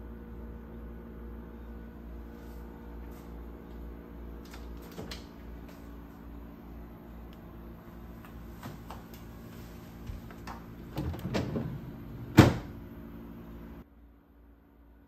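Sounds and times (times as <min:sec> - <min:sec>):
fridge door and bins rattling: 0:04.4 - 0:05.4, 0:09.9 - 0:12.9
fridge door shutting clunk: 0:10.0 - 0:12.9.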